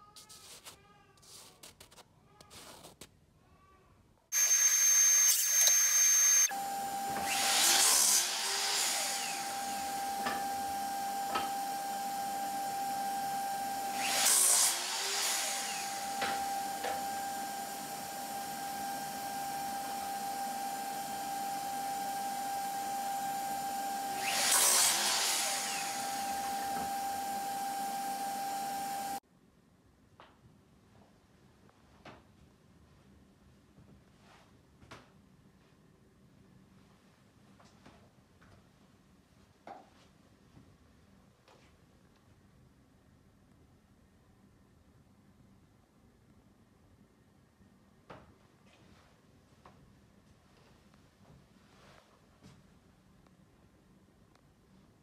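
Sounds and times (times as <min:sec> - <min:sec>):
dust extractor motor whine: 0:04.4 - 0:29.2
miter saw blade cutting: 0:04.4 - 0:29.2.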